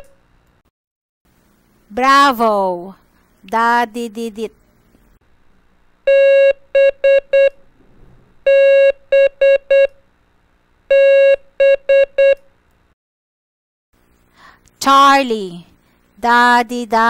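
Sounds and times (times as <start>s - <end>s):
morse code beeps: 6.1s - 7.6s, 10.9s - 12.4s.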